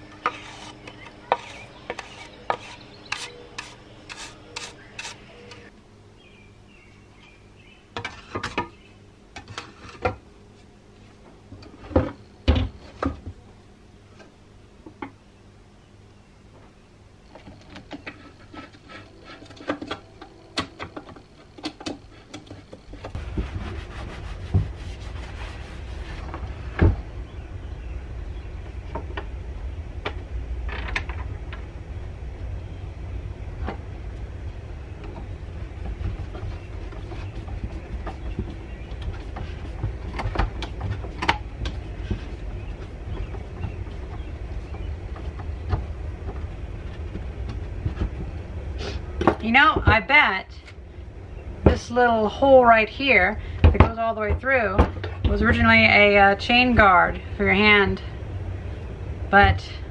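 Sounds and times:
steady low rumble: 22.8 - 59.9.

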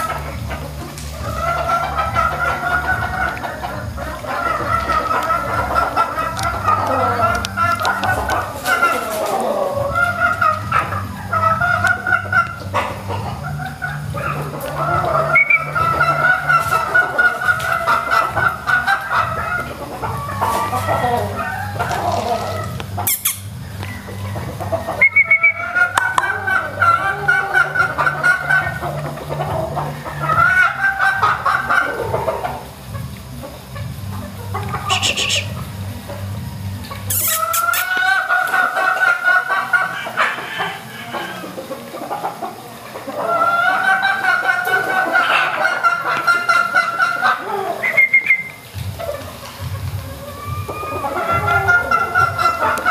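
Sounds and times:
rooster crowing: 0.0 - 32.7, 36.4 - 41.9, 50.0 - 52.9
long wavering chicken call: 0.0 - 36.0, 36.8 - 52.9
chickens clucking: 0.0 - 52.9
short higher bird call: 34.9 - 35.5, 37.1 - 37.9.

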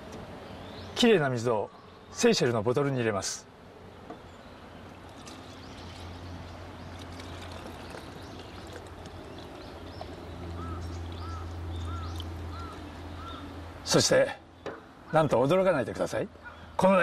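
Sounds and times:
bird chirping: 0.0 - 3.0, 4.0 - 15.6
water pouring into plastic bottle: 6.8 - 9.6.

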